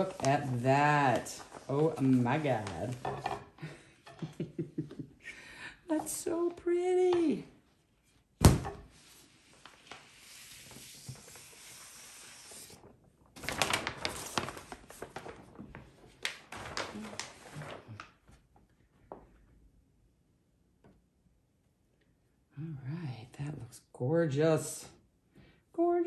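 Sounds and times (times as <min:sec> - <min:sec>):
plastic sheet rustling and crinkling: 0:00.0 - 0:03.3, 0:08.9 - 0:18.7.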